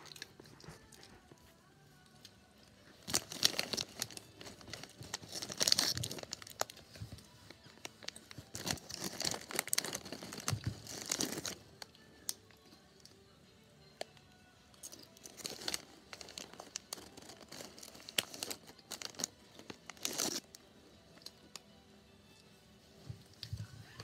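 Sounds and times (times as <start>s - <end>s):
chips crunching: 3.0s - 6.7s, 8.1s - 11.6s, 14.8s - 20.6s
chip bag crinkling: 3.0s - 6.8s, 7.6s - 11.6s, 14.8s - 20.6s.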